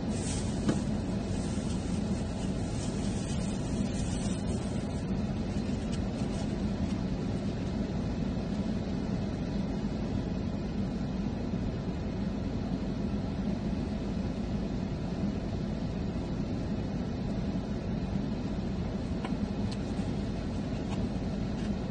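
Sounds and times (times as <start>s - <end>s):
car idling inside cabin: 0.0s - 21.9s.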